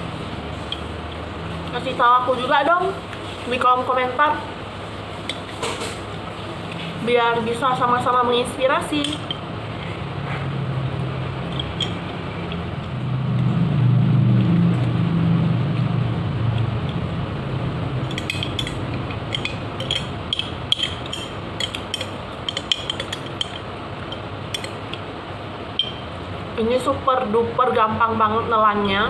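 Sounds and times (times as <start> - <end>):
spoon scraping glass jar: 18.1 - 24.8.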